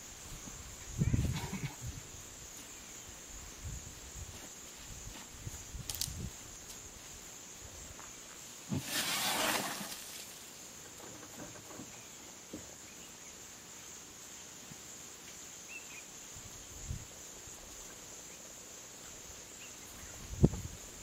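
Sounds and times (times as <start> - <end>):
elephant rustling through brush: 8.7 - 10.5.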